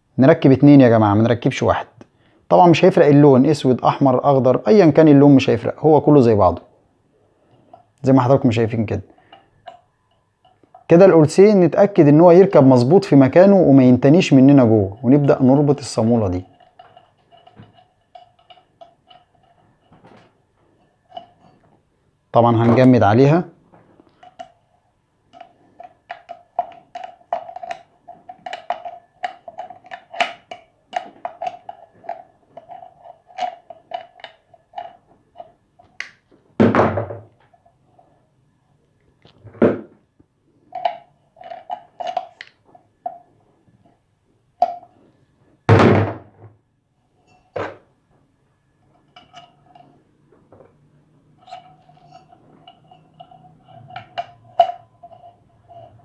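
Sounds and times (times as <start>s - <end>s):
metal parts clicking and scraping: 13.0s - 21.7s, 49.0s - 50.2s, 51.3s - 56.0s
loud thunks: 36.6s - 37.3s, 39.5s - 40.0s, 45.7s - 46.6s.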